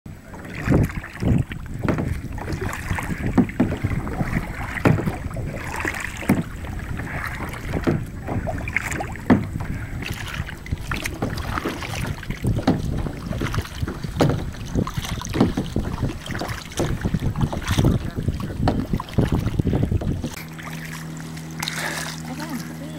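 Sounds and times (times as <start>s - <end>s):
wind buffeting microphone: 0.1s - 20.4s
paddle dipping and splashing: 0.1s - 22.9s
knocks: 1.8s - 2.2s, 3.3s - 3.9s, 4.8s - 5.2s, 9.2s - 9.7s, 12.0s - 17.9s, 18.6s - 18.9s.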